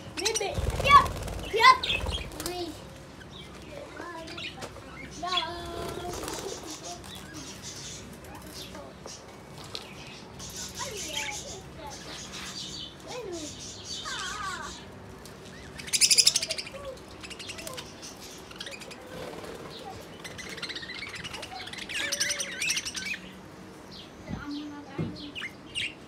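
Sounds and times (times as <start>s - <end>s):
budgerigars chirping and warbling: 0.0s - 2.4s, 4.2s - 9.3s, 9.9s - 14.9s, 15.5s - 26.0s
loud rapid rattling burst: 0.6s - 2.6s.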